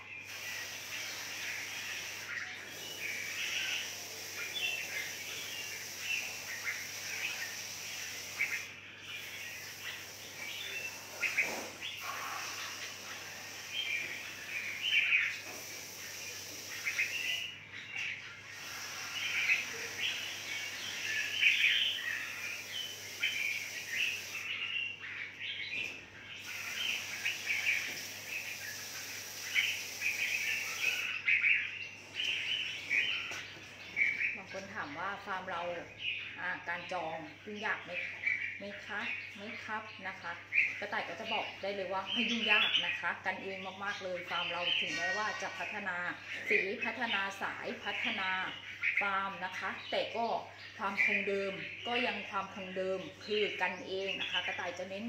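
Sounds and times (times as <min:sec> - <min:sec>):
birds chirping and calling: 0:00.0 - 0:55.0
hose spray nozzle hissing: 0:18.5 - 0:21.8.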